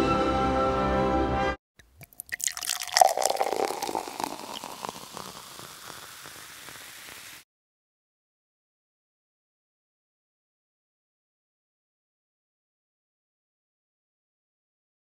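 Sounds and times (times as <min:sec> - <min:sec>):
beer fizzing: 0:01.8 - 0:07.4
beer poured into a glass: 0:01.8 - 0:07.4.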